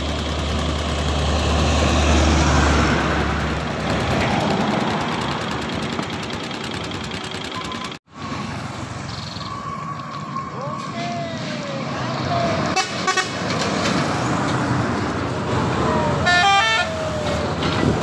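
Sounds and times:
distant traffic rush: 0.0 - 18.0
dump truck engine drone: 0.0 - 18.0
tyre and road noise: 0.0 - 18.0.

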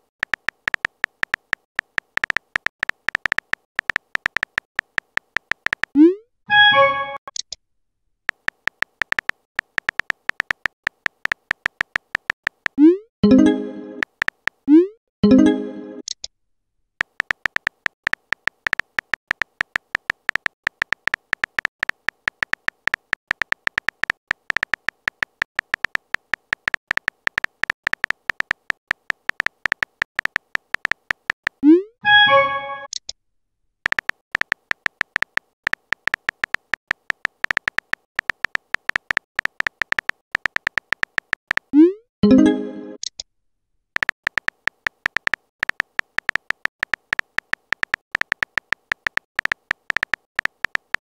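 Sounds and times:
phone keyboard typing clicks: 0.0 - 7.6, 8.3 - 14.7, 17.0 - 31.7, 33.8 - 43.2, 44.0 - 51.0
rising notification tone: 6.0 - 7.2, 12.8 - 14.0, 14.7 - 16.0, 41.8 - 43.0.

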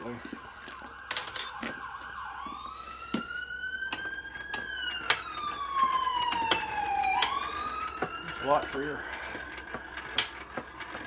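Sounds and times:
regular clicking from engine: 3.9 - 11.0.

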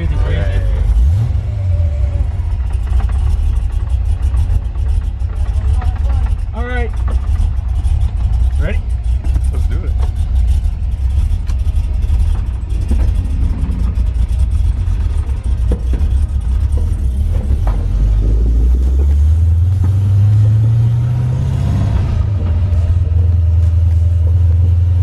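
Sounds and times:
car engine heard from inside: 0.0 - 25.0.

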